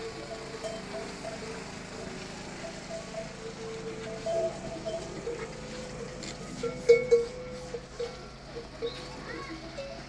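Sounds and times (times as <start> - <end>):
metal neck bells clanking: 2.6 - 9.1.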